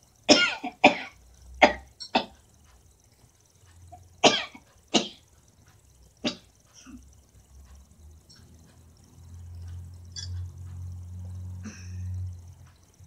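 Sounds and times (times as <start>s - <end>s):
woman coughing: 0.3s - 2.3s.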